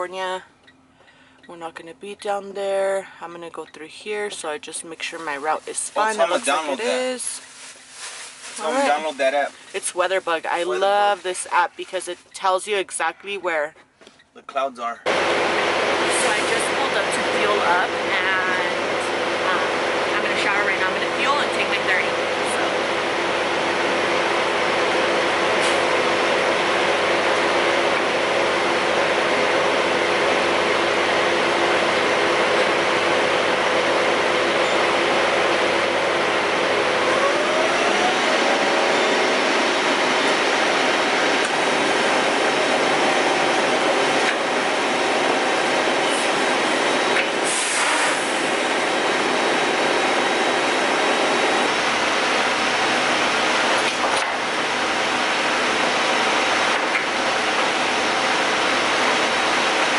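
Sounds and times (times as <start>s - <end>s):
diesel truck engine running: 0.0s - 13.7s, 15.0s - 59.9s.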